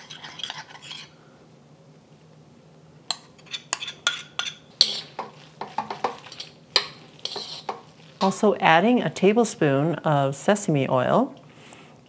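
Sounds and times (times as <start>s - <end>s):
metal utensil clinking against wok: 3.1s - 7.8s.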